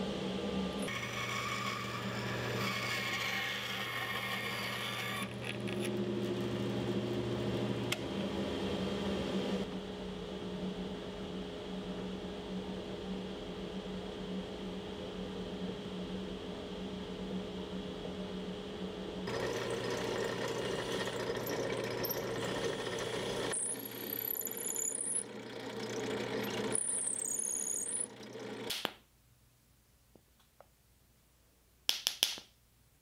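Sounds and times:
bandsaw cutting wood: 0.8 - 8.0, 19.3 - 28.8
drill press humming: 0.8 - 9.2, 19.3 - 28.7.

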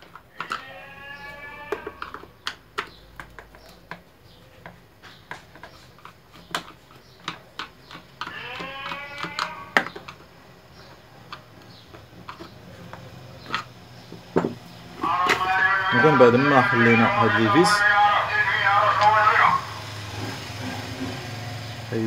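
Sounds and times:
screwdriver clicking on plastic: 0.0 - 10.3.

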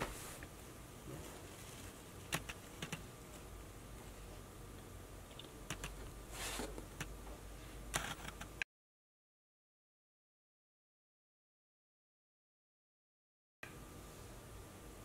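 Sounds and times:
faint steady hum: 0.0 - 8.6, 13.6 - 15.0
paper rustling: 6.3 - 6.9.

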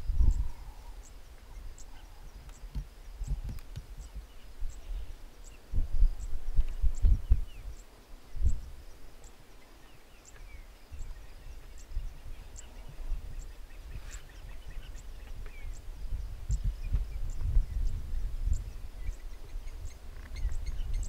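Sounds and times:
low rumbling wind buffet: 0.0 - 21.0
small bird chirps: 9.2 - 21.0.

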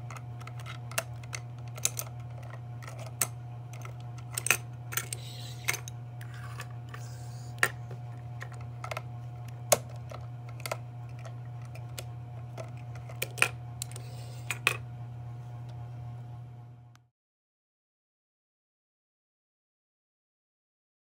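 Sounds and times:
plastic toy clicks and knocks: 0.0 - 5.9, 9.7 - 14.7
steady low hum: 0.0 - 17.0.

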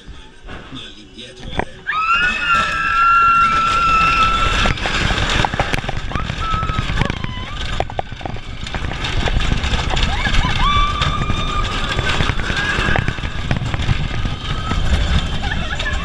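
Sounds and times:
riders screaming: 1.9 - 5.4, 6.0 - 7.9, 9.8 - 16.0
wind rushing over microphone: 2.4 - 16.0.

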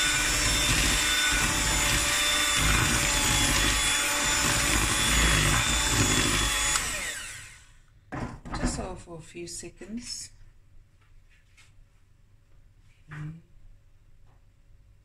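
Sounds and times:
electric hand mixer whine: 0.0 - 7.8.

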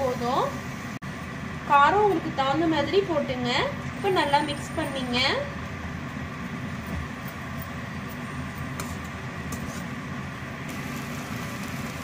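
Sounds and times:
low background hum: 0.0 - 10.7
food simmering hiss: 4.2 - 12.0.

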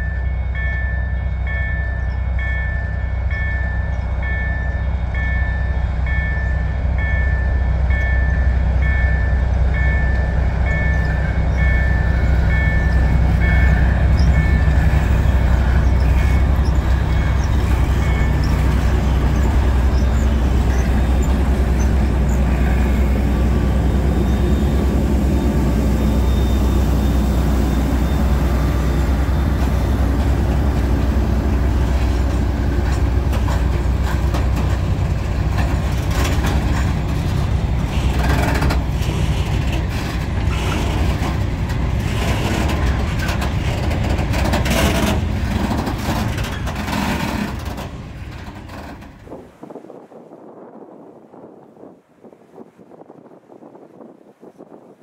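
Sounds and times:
level crossing signal beeping: 0.0 - 31.8
freight wagons rolling on rails: 0.0 - 50.0
diesel locomotive passing: 0.0 - 54.8.

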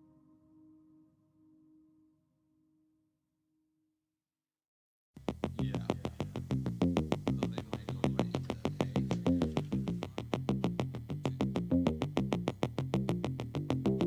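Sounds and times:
clicking beat: 5.2 - 14.0
stepping bass line: 5.2 - 14.0.

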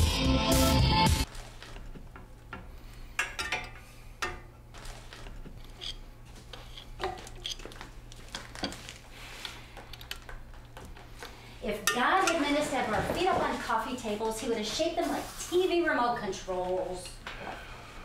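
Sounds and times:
metal tool clicking on fan: 2.1 - 4.5, 11.8 - 12.4.

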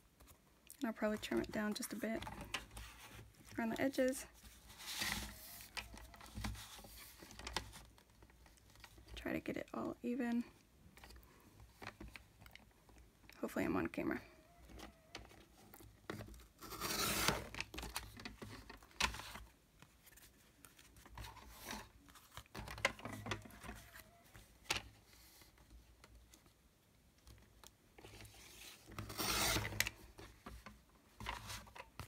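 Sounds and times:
paper cutter blade cutting paper: 16.6 - 17.5, 29.0 - 29.8.

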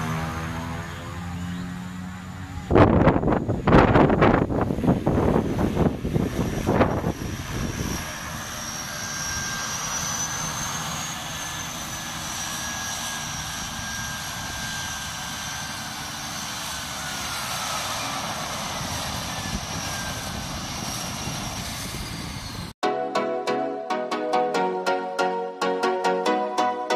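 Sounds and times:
propeller plane engine whine: 0.0 - 22.8
wind buffeting microphone: 2.6 - 8.5, 18.3 - 22.7.

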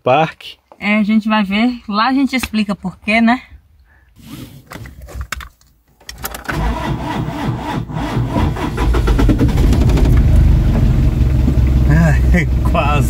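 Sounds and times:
engine starter clicks and knocks: 6.1 - 11.9
engine running steadily: 8.6 - 13.0.

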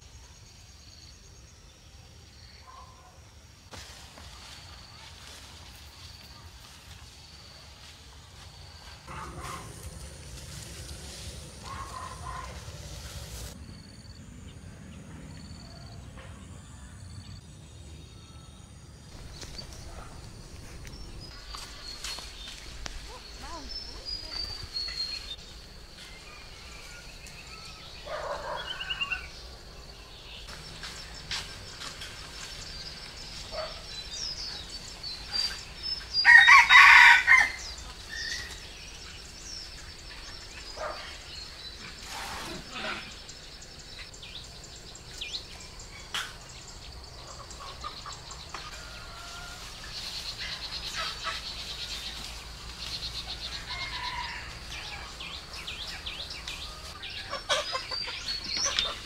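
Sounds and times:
small birds chirping: 6.0 - 16.2, 17.2 - 59.0
rooster crowing: 36.2 - 37.7, 48.6 - 49.8, 53.5 - 55.3
chickens clucking: 47.2 - 53.7, 55.0 - 59.0.

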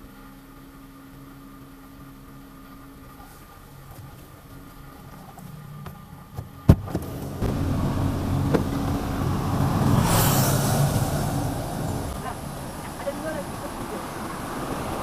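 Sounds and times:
road traffic hum: 0.0 - 15.0
car door unlatching click: 8.4 - 9.0.

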